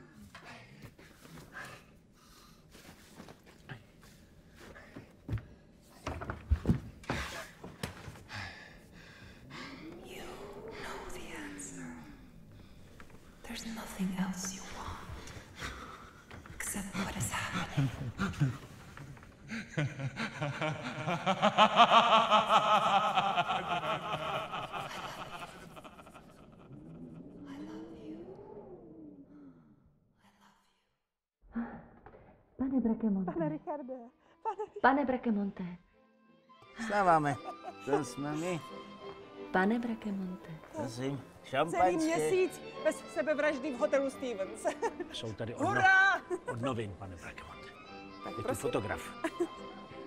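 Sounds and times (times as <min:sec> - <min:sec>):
low drawn-out sigh: 0:09.0 - 0:12.7
man laughing loudly: 0:19.7 - 0:26.8.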